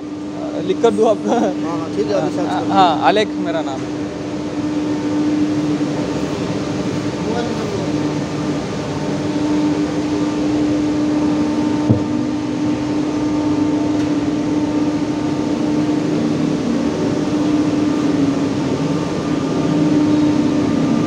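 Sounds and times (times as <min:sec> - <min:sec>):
steady machine hum: 0:00.0 - 0:21.0
short knock: 0:11.8 - 0:12.2.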